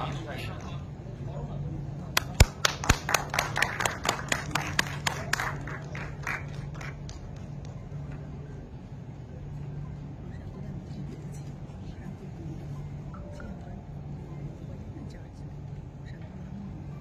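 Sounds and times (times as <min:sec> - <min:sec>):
steady low hum: 0:00.0 - 0:17.0
people clapping: 0:02.1 - 0:08.4.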